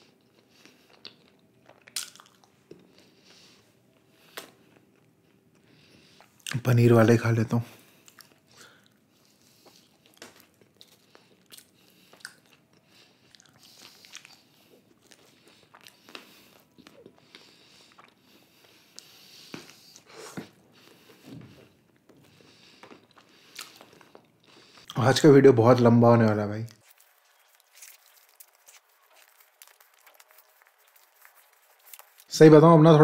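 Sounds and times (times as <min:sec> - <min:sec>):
person chewing pizza: 0:00.0 - 0:06.6, 0:07.8 - 0:25.0, 0:26.7 - 0:32.3
crust crunching: 0:26.8 - 0:32.3.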